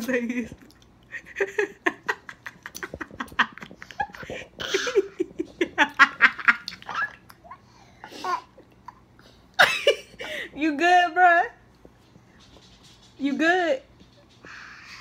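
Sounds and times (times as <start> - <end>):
woman laughing: 1.1 - 6.9, 9.6 - 10.6.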